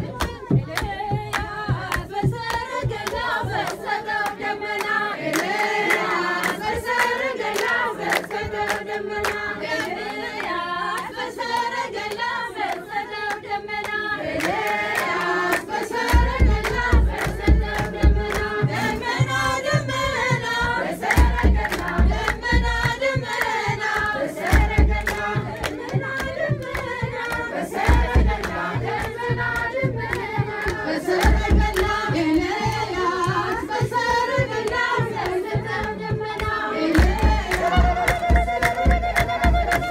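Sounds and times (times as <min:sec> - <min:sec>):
deep drum beats: 0:00.0 - 0:03.7, 0:15.7 - 0:39.9
hand clapping: 0:00.0 - 0:39.9
women singing a hymn: 0:00.0 - 0:39.9.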